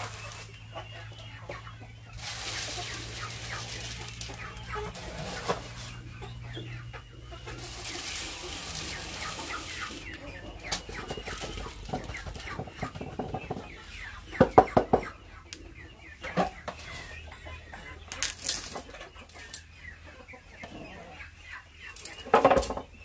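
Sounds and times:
chickens clucking: 0.0 - 23.0.

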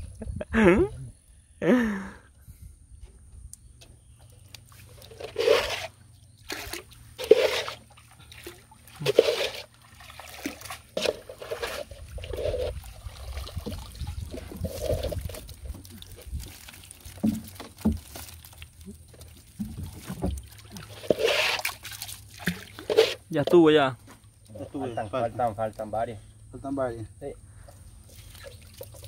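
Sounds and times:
water splashing off net: 5.0 - 18.6, 19.2 - 23.2.

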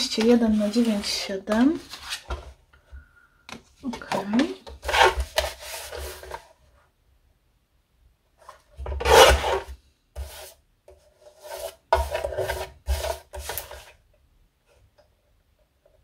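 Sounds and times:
paper and card rubbing on surface: 10.2 - 10.6, 11.2 - 13.8.

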